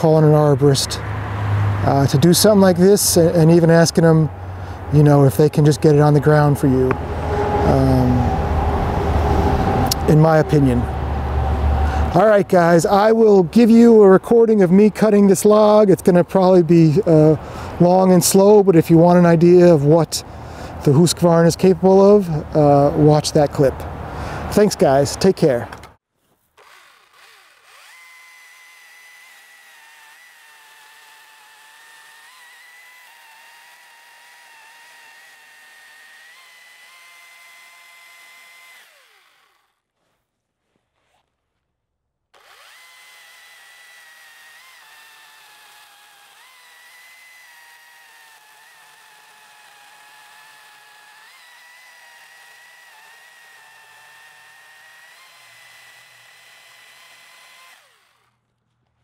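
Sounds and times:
chainsaw cutting log: 0.0s - 40.2s, 42.3s - 59.0s.

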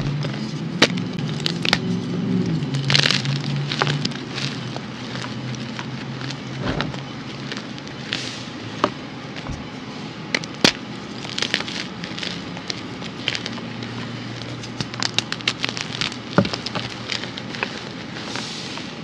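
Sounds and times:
hands crushing chalk blocks: 0.0s - 9.7s, 10.3s - 18.9s
dull thump: 6.6s - 7.0s, 9.4s - 9.7s.

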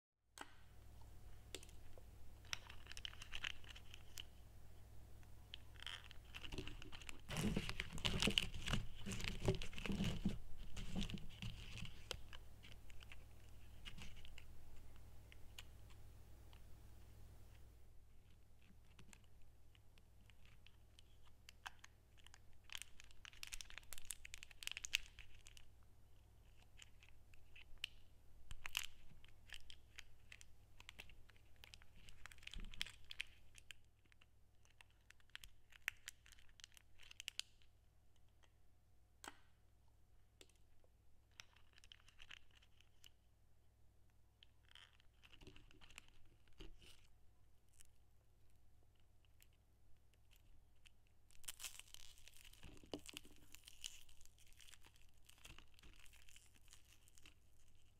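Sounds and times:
candy wrapper crinkling: 1.6s - 4.4s, 5.5s - 14.5s, 18.2s - 25.8s, 26.4s - 37.7s, 41.3s - 43.3s, 44.4s - 48.0s, 48.9s - 57.9s.

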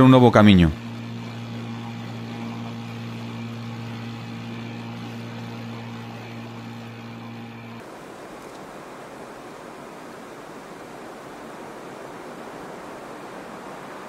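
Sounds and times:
outboard motor running: 0.0s - 8.0s.

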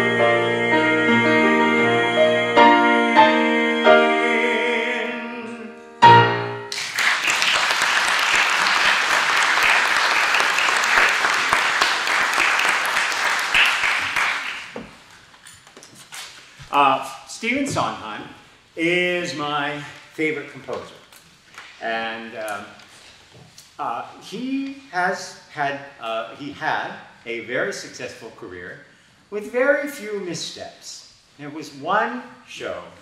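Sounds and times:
grand piano playing: 0.0s - 6.8s
audience applauding: 6.7s - 15.0s.

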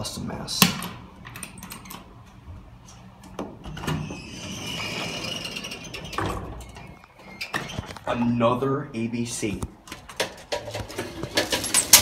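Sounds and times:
elevator door scraping and rattling: 3.6s - 8.2s.

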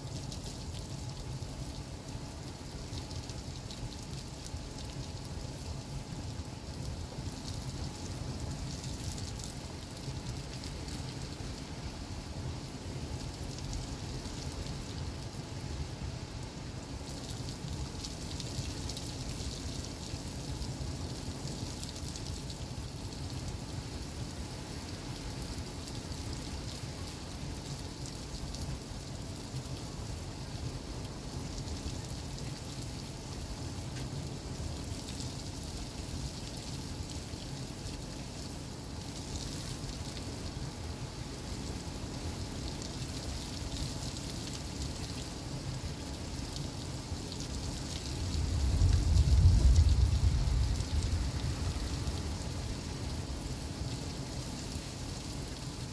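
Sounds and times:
heavy rain hissing: 36.8s - 55.9s
gusty wind rumbling: 48.4s - 51.8s.

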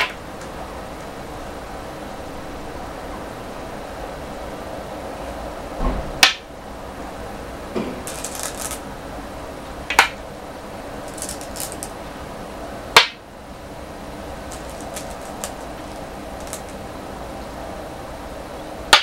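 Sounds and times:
stones clacking on wooden board: 8.0s - 8.8s, 11.1s - 11.9s, 14.5s - 16.8s
stones clinking in a bowl: 8.0s - 8.8s, 11.1s - 11.9s, 14.5s - 16.8s.

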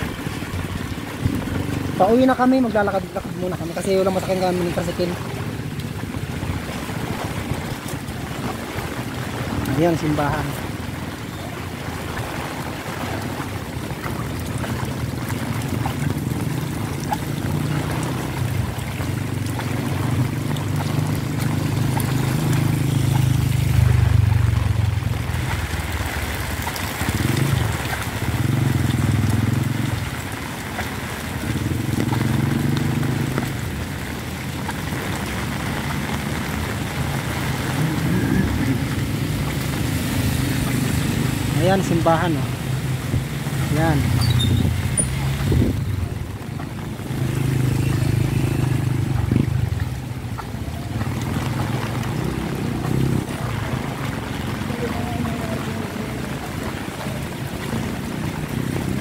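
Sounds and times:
road traffic: 0.0s - 59.0s
wind rumbling: 0.0s - 59.0s
heavy rain hissing: 20.0s - 59.0s.

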